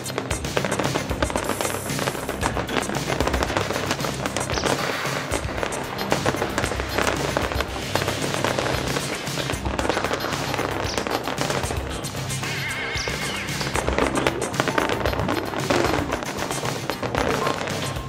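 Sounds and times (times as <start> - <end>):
fireworks bursting and crackling: 0.0 - 18.0
music: 0.0 - 18.0.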